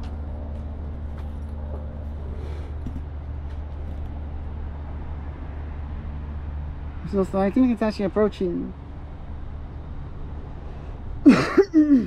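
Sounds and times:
road traffic rumble: 0.0s - 12.0s.

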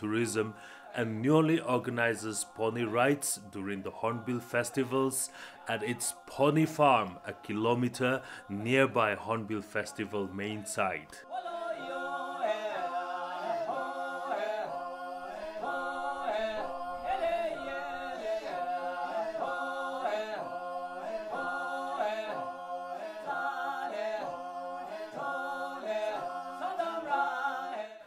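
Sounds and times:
unaccompanied chant-like singing: 0.0s - 28.0s.

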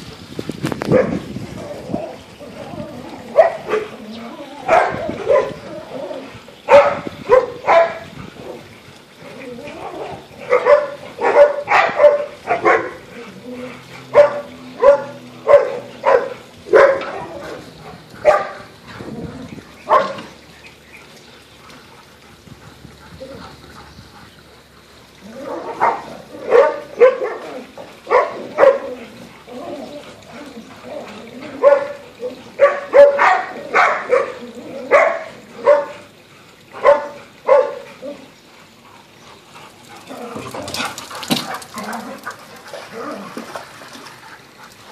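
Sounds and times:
dogs barking: 0.9s - 1.2s, 3.2s - 4.0s, 4.6s - 5.7s, 6.6s - 8.7s, 9.8s - 19.1s, 19.8s - 20.4s, 25.3s - 30.2s, 31.4s - 38.3s.

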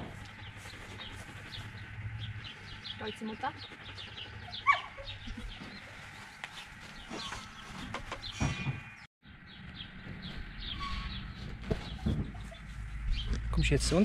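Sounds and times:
puppies squeaking and whimpering: 3.6s - 5.9s, 10.7s - 12.8s.

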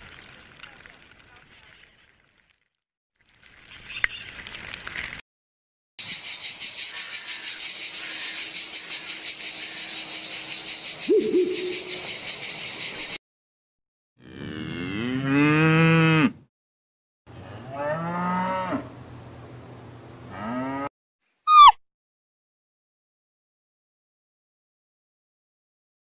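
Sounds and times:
high pulsing buzz: 7.9s - 12.4s
cow mooing: 14.2s - 16.4s, 17.4s - 18.9s, 20.3s - 20.9s.

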